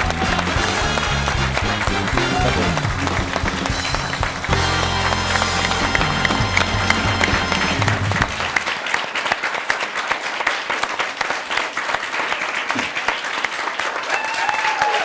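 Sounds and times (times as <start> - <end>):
studio audience applauding: 0.0 - 15.0.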